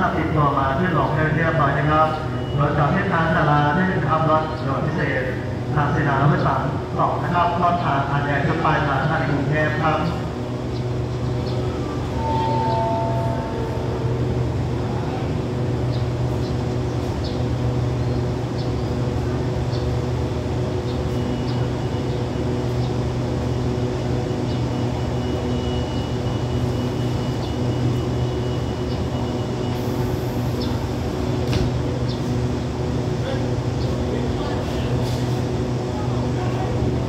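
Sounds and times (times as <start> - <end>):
diesel train idling: 0.0 - 37.0
faint high whine: 11.7 - 15.2.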